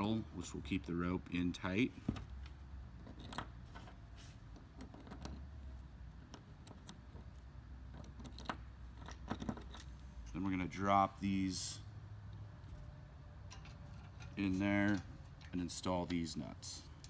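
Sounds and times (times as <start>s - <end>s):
metal hardware clinking: 3.0s - 3.9s, 6.2s - 10.6s, 13.4s - 17.0s.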